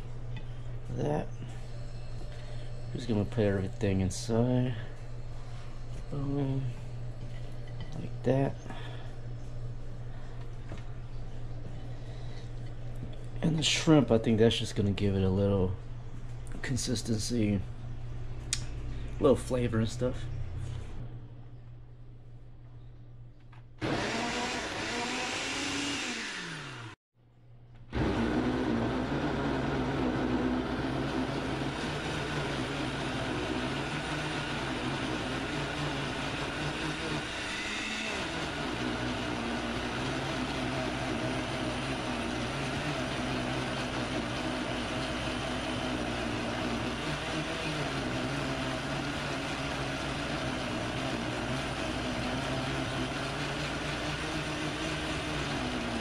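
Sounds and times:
blender motor grinding: 0:23.8 - 0:27.0, 0:27.9 - 0:56.0.

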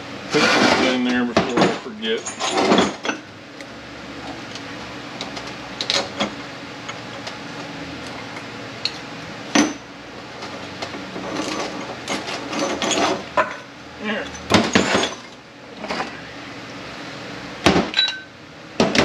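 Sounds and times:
metal parts clinking and knocking: 0:00.4 - 0:03.2, 0:11.2 - 0:16.1.

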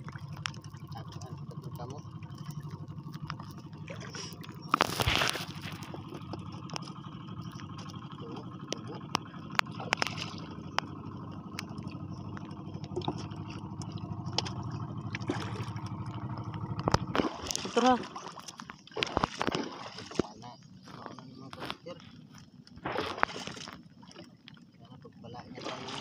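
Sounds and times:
water splash: 0:00.0 - 0:22.0, 0:22.8 - 0:24.6, 0:25.4 - 0:26.0
low hum: 0:00.0 - 0:26.0
water lapping against boat hull: 0:00.0 - 0:26.0.

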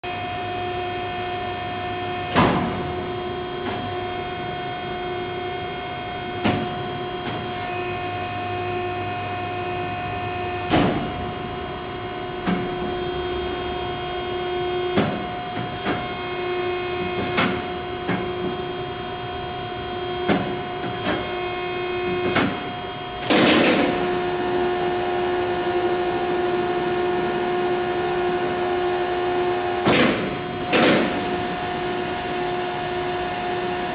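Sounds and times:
machine drive hum and whine: 0:00.0 - 0:33.9
sharp machine knocks: 0:29.8 - 0:31.4.

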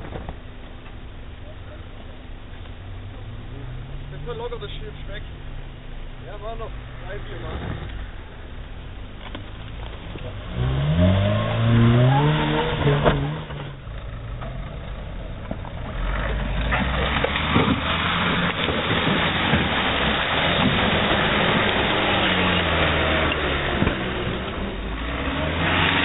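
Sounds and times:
vehicle driving on rough ground: 0:00.0 - 0:26.0
engine revving: 0:09.9 - 0:26.0.

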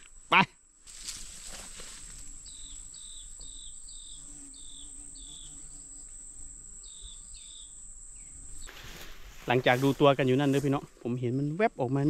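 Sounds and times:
high-pitched insect trill: 0:00.0 - 0:12.0
short falling insect chirp: 0:00.8 - 0:10.9.

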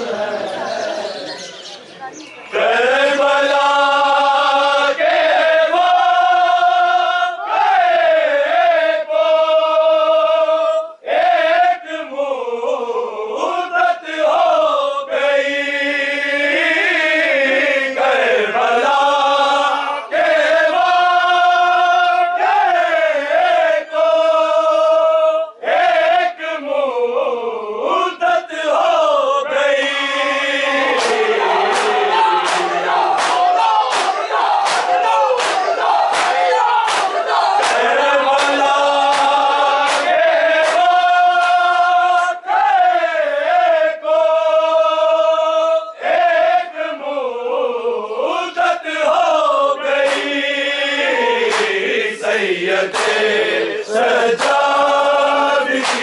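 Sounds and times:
crowd voices: 0:00.0 - 0:05.5, 0:29.5 - 0:41.0
chest-beating slaps: 0:30.9 - 0:41.7, 0:50.0 - 0:50.4, 0:51.4 - 0:51.9, 0:52.9 - 0:53.4, 0:54.4 - 0:54.8, 0:55.7 - 0:56.0.

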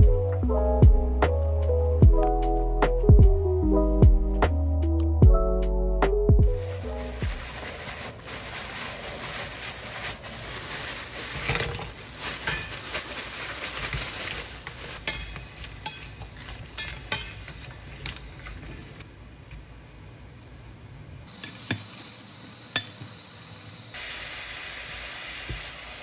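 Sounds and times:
food sizzling in a pan: 0:06.8 - 0:19.0, 0:21.3 - 0:26.0
utensil clinking against pan: 0:15.0 - 0:17.5.

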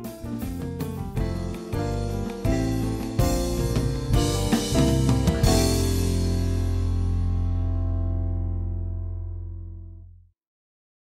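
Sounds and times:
drum kit beat: 0:00.0 - 0:07.5
sustained keyboard chords: 0:00.0 - 0:10.0.

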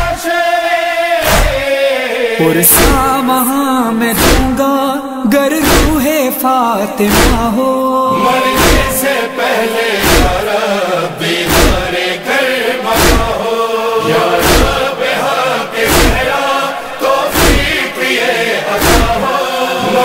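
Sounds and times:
male chorus chanting: 0:00.0 - 0:20.0
heavy even beat: 0:04.2 - 0:04.6, 0:05.6 - 0:06.1, 0:07.0 - 0:10.5, 0:11.5 - 0:12.0, 0:13.0 - 0:13.4, 0:14.2 - 0:14.9, 0:15.9 - 0:16.3, 0:17.3 - 0:17.8.

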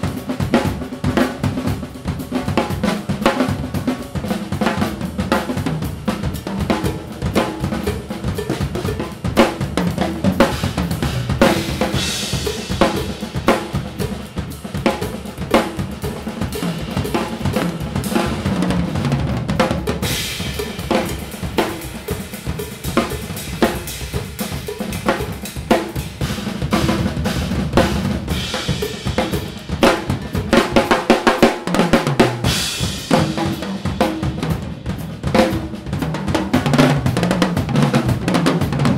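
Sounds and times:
drum kits playing: 0:00.0 - 0:38.9
cymbal washes: 0:06.7 - 0:18.6, 0:20.0 - 0:31.4, 0:32.4 - 0:34.9.

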